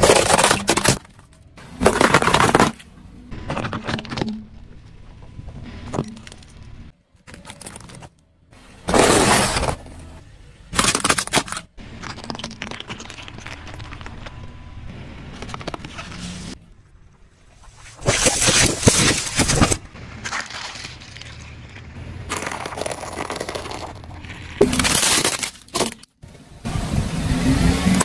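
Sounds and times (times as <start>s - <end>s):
tyre crushing plastic objects: 0.0s - 5.0s, 7.2s - 8.2s, 8.8s - 14.4s, 18.0s - 26.2s.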